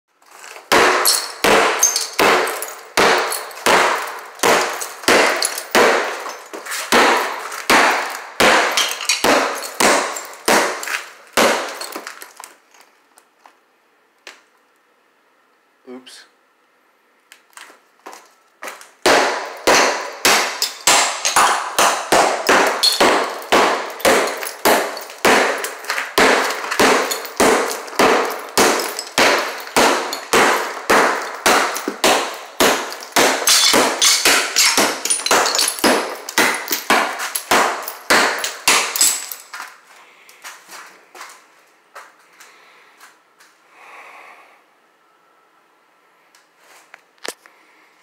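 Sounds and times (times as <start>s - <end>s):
hammer striking ceramic tile: 0.7s - 12.0s, 19.1s - 39.4s.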